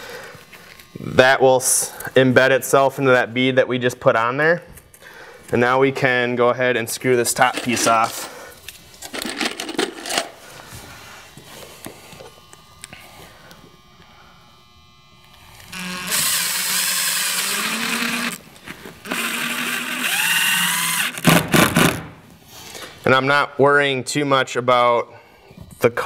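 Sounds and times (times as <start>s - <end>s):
impact driver driving screws: 15.7s - 18.4s, 19.0s - 22.1s.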